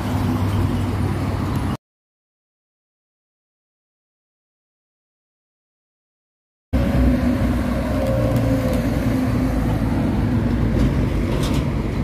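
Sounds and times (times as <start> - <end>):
trucks driving past: 0.0 - 1.8, 6.8 - 12.0.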